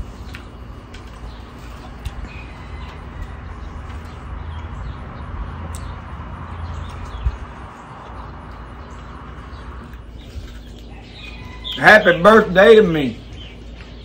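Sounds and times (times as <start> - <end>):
birds chirping: 0.0 - 14.0
outdoor air rumble and hiss: 0.0 - 14.0.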